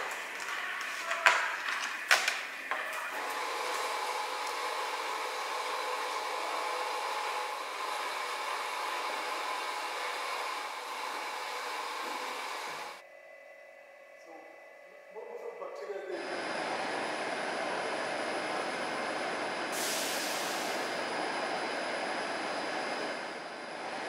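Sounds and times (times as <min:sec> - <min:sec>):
steady machine whirring: 0:16.1 - 0:24.0.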